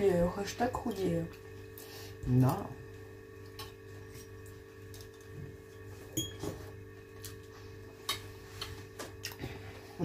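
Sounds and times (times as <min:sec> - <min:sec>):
steady low hum: 0:00.0 - 0:10.0
chewing and mouth noises: 0:09.2 - 0:09.5.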